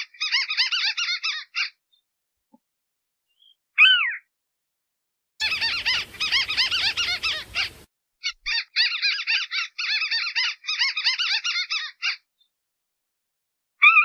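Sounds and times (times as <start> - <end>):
bird downward-gliding call: 5.4 - 7.8
faint hiss: 5.4 - 7.9
bird chattering squeaky notes: 5.4 - 12.2.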